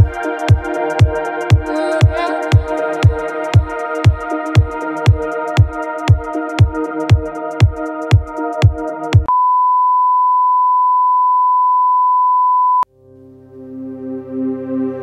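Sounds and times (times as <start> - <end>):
electronic music with kick drum: 0.0 - 9.3
soft ambient music: 0.0 - 9.3, 12.8 - 15.0.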